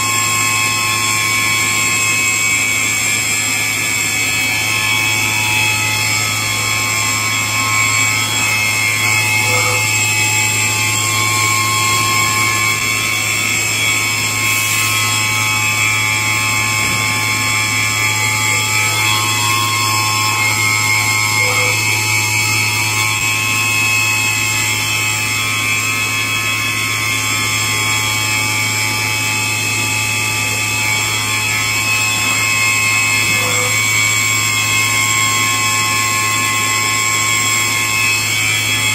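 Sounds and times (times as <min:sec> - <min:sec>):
tool grinder humming and whining: 0:00.0 - 0:38.9.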